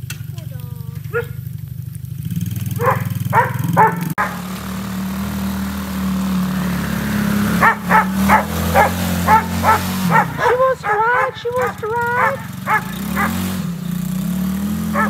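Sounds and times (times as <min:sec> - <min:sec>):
small engine running: 0:00.0 - 0:15.0
dog barking: 0:01.1 - 0:01.4, 0:02.8 - 0:04.4, 0:07.6 - 0:13.5.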